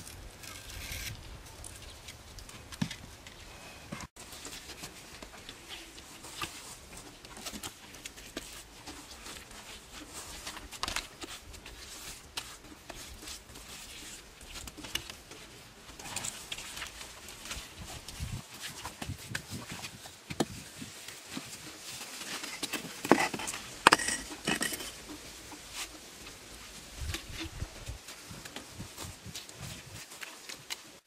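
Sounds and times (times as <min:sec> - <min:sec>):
stones knocking and scraping: 0:22.2 - 0:25.1.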